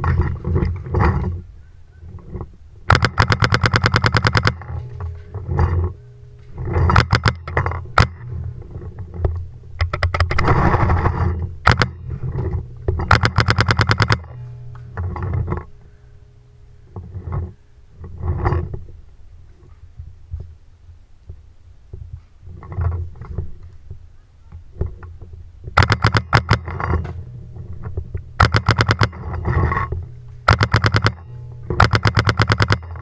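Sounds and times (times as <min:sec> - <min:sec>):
paintball marker rapid firing: 0:02.9 - 0:04.6, 0:06.9 - 0:07.4, 0:13.1 - 0:14.3, 0:25.8 - 0:26.7, 0:28.4 - 0:29.2, 0:30.4 - 0:33.0.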